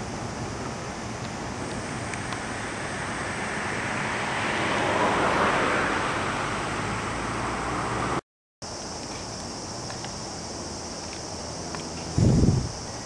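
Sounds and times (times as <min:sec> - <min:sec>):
vehicle passing by: 0:01.8 - 0:08.2.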